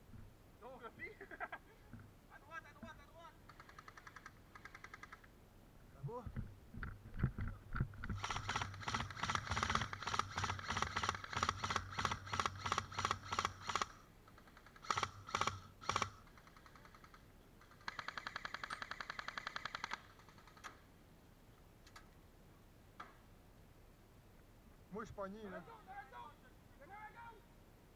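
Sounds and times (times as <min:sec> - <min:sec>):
airsoft rifle shots: 0:08.1 - 0:14.0, 0:14.8 - 0:16.6.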